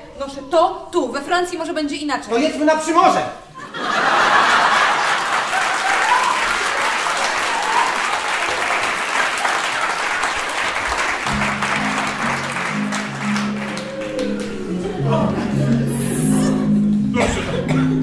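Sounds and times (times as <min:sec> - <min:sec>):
audience applauding: 0:04.0 - 0:16.0
music with low held notes: 0:11.3 - 0:18.0.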